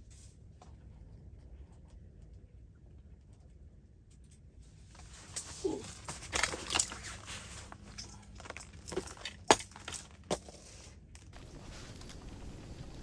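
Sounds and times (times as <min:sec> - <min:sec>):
light rustling: 0:04.7 - 0:12.2.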